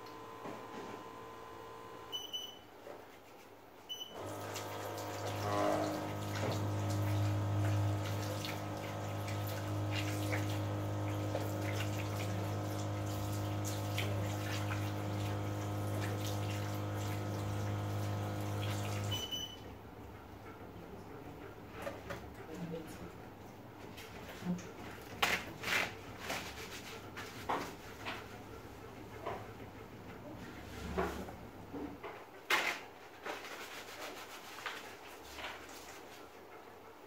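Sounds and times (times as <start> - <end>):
electric water pump humming: 0.0 - 2.3, 4.0 - 19.5
water running and splashing: 4.2 - 19.2.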